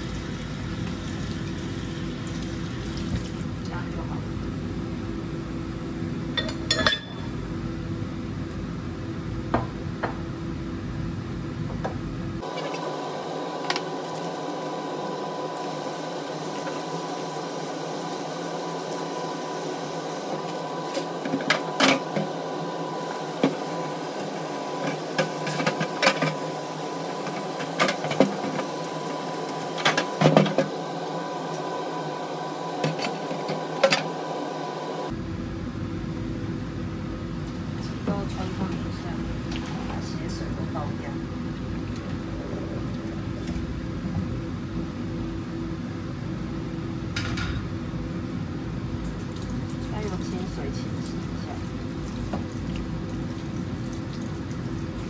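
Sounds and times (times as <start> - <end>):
steady background hum: 0.0 - 55.0
pots and dishes clinking: 6.4 - 7.3.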